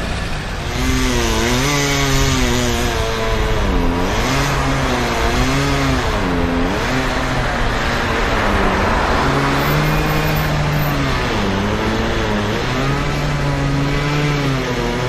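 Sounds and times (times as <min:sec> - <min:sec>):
chainsaw cutting wood: 0:00.2 - 0:15.0
car passing by: 0:06.7 - 0:11.5.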